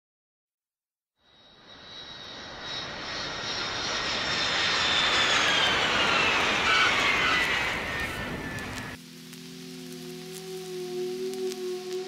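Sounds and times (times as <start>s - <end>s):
jet engines approaching: 1.3s - 12.0s.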